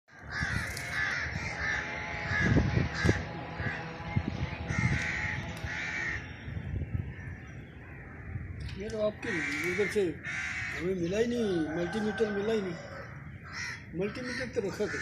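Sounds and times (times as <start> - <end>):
crows cawing: 0.1 - 15.0.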